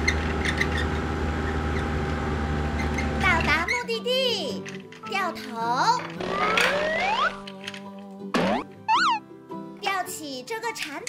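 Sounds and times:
light background music: 0:03.2 - 0:11.0
cartoon boing: 0:08.4 - 0:09.2
slide whistle glide: 0:08.9 - 0:09.2.

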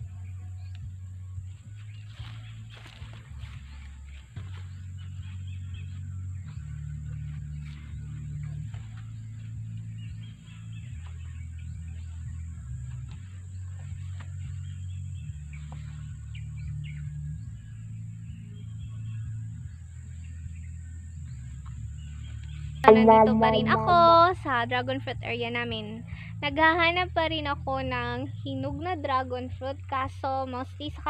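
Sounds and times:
slow background music: 0:22.8 - 0:24.9.

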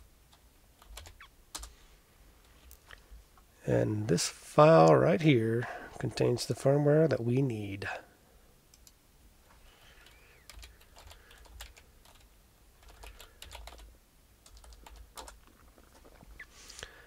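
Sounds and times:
computer keyboard typing: 0:00.8 - 0:01.7, 0:10.0 - 0:16.1.

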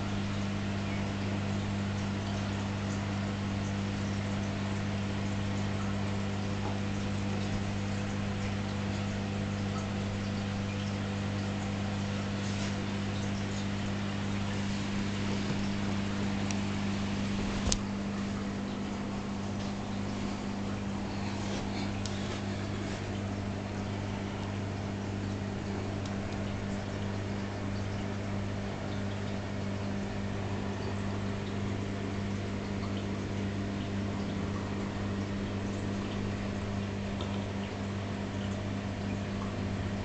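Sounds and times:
hiss of circulating water: 0:00.0 - 0:28.7
aquarium pumps humming: 0:00.0 - 0:40.0.

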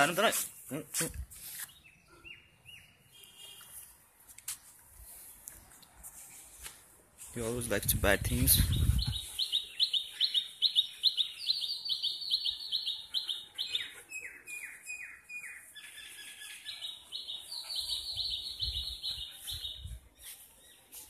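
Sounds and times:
small bird chirping: 0:08.6 - 0:21.0.

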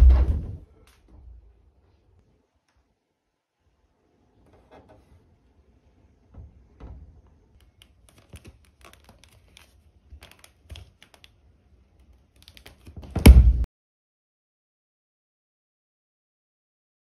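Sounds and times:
small clicks: 0:07.6 - 0:13.0
soft low thumps: 0:13.2 - 0:13.7.

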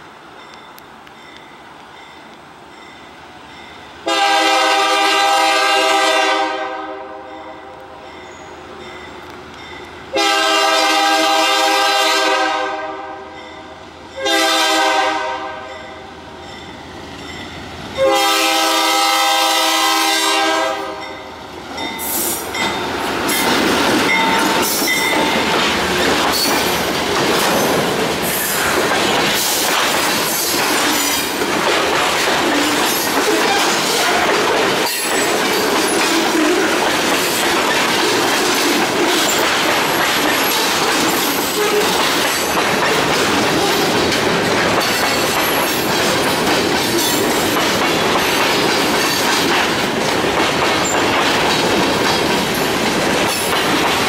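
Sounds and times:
locomotive air horn blasts: 0:04.0 - 0:07.8, 0:10.1 - 0:13.4, 0:14.2 - 0:15.8, 0:18.0 - 0:21.1
steel wheels on rails: 0:16.4 - 0:54.0.

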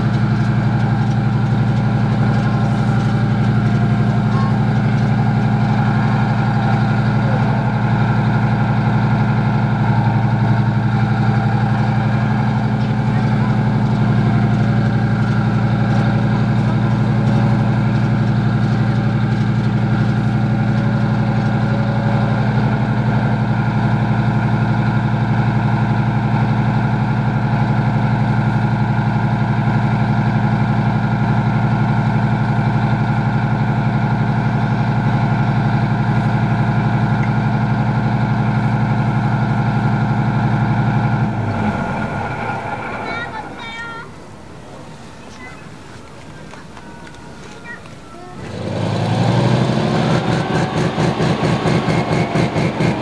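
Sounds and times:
tank engine idling: 0:00.0 - 0:53.0.

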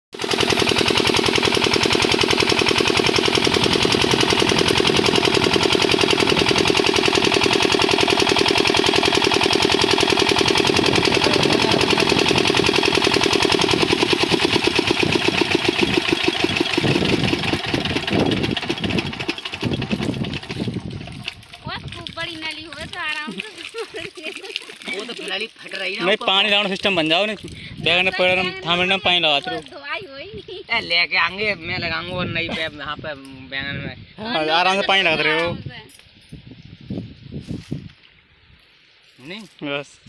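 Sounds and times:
diesel engine chugging: 0:00.2 - 0:22.6.

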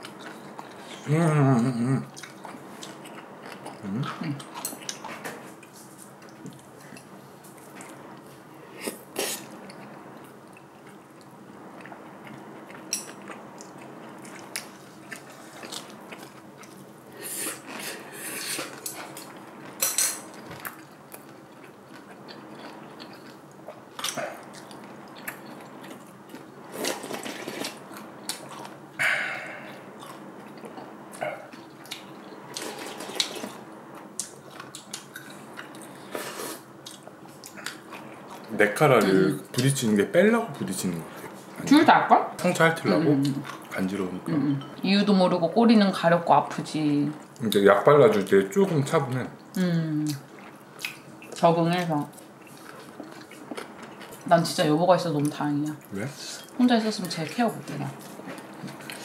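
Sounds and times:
chewing and wet mouth sounds: 0:00.0 - 0:39.7, 0:43.2 - 0:43.8, 0:49.1 - 0:59.0.

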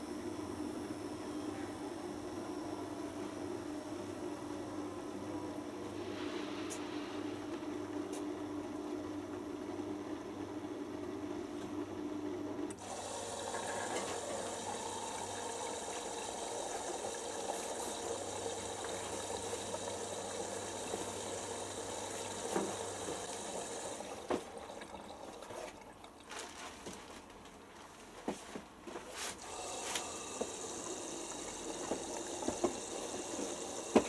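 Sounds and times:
washing machine hum: 0:00.0 - 0:34.0
water rushing into drum: 0:29.4 - 0:34.0.

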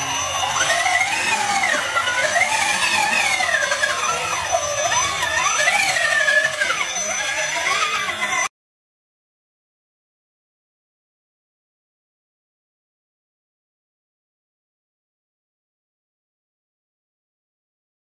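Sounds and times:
toy truck motor whining: 0:00.0 - 0:08.5.

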